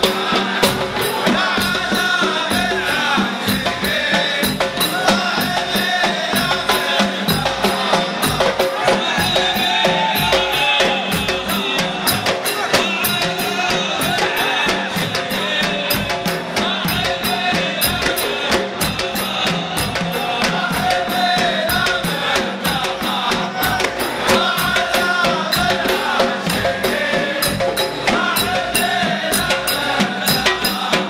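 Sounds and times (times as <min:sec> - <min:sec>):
frame drums beating: 0:00.0 - 0:31.0
men's chorus singing: 0:00.0 - 0:31.0.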